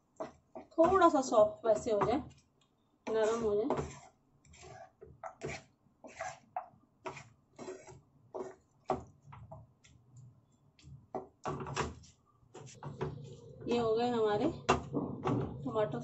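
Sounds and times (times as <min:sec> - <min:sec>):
spatula scraping frying pan: 0:03.1 - 0:08.7.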